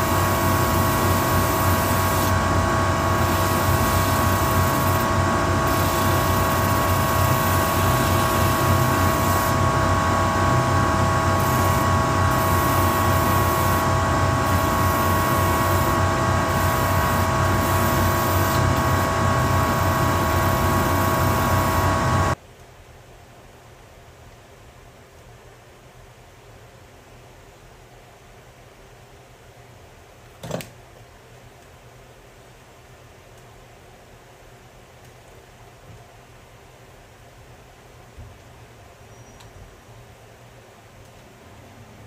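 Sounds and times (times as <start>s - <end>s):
sanding machine motor whine: 0.0s - 22.4s.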